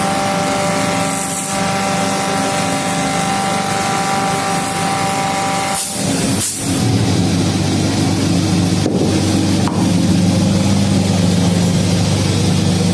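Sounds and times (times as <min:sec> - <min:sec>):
lathe motor humming: 0:00.0 - 0:12.9
compressed air hisses: 0:05.7 - 0:06.8.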